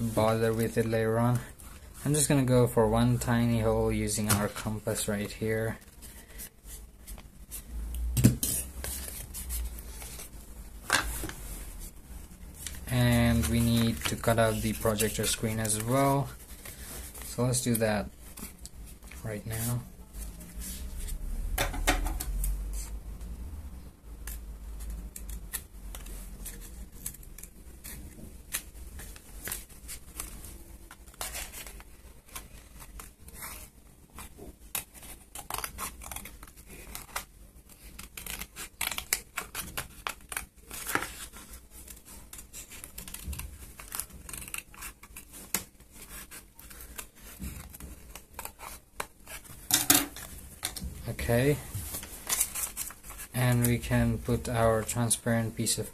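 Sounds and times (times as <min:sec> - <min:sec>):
paper rustling: 0:00.0 - 0:21.2, 0:24.8 - 0:55.9
scissors snipping paper: 0:24.2 - 0:30.4, 0:34.2 - 0:50.7.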